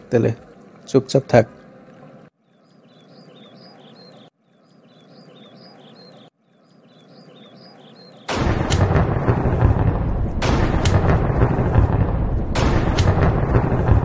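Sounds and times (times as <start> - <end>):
small birds chirping: 0.0 - 8.9
loud rushing crackling noise: 8.3 - 14.0.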